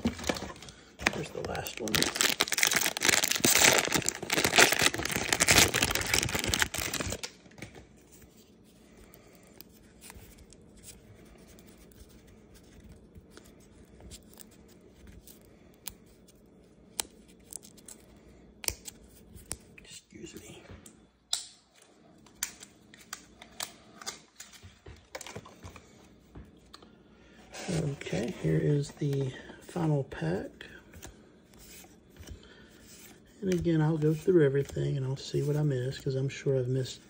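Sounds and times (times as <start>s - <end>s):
foil wrapper tearing and crinkling: 1.0s - 7.7s.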